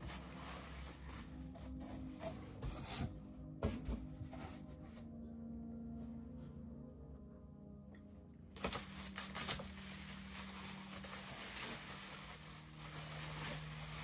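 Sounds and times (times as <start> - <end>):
bubble wrap crinkling and rustling: 0.0 - 2.0, 8.6 - 14.0.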